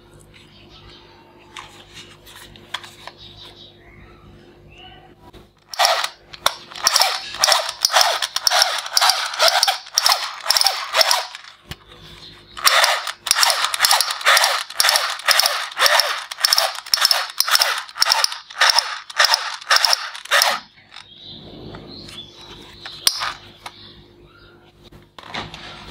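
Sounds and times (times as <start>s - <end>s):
toy rifle shooting sounds: 5.7s - 11.6s, 12.6s - 21.0s, 23.0s - 23.4s.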